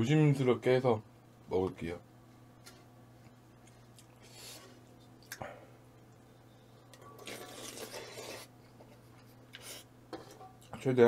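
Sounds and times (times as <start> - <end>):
wet broth noise: 6.0 - 8.6.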